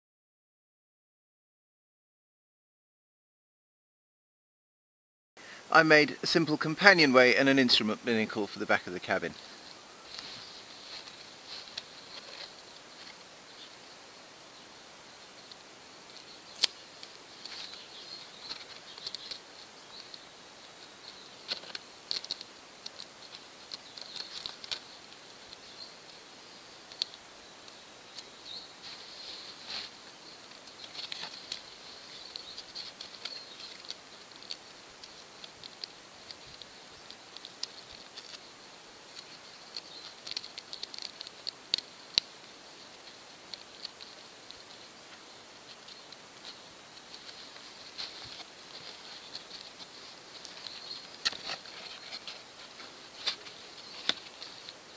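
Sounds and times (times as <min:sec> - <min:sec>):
plastic and card clicks and crinkles: 0:15.5 - 0:20.2, 0:20.8 - 0:25.7, 0:26.8 - 0:54.9.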